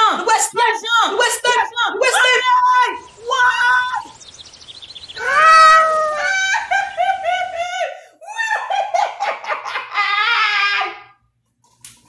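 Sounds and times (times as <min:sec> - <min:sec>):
person screaming and wailing: 0:05.2 - 0:08.9, 0:09.9 - 0:11.2.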